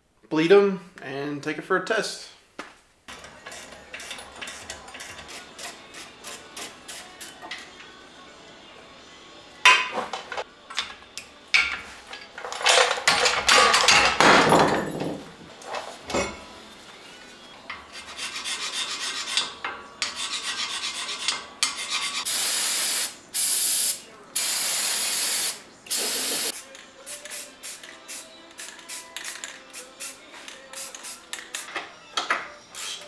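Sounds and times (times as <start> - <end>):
metal clanks and knocks: 9.7 - 15.4
aerosol spray hissing: 22.3 - 26.6.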